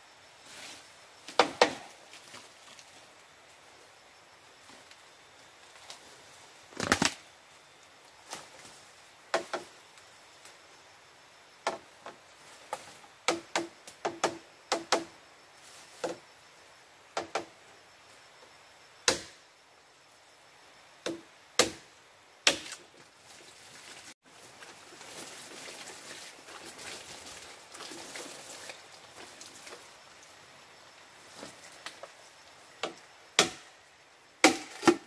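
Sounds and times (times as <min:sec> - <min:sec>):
machete chopping bamboo: 0:13.3 - 0:15.1, 0:19.0 - 0:19.4, 0:21.0 - 0:22.8, 0:32.8 - 0:33.7, 0:34.4 - 0:35.0.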